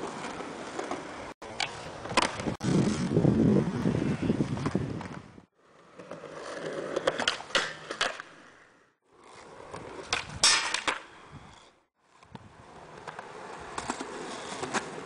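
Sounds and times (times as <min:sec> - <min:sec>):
skateboard wheels rolling on concrete: 0:00.0 - 0:15.0
skateboard clacking on ground: 0:05.9 - 0:08.3, 0:09.6 - 0:11.2.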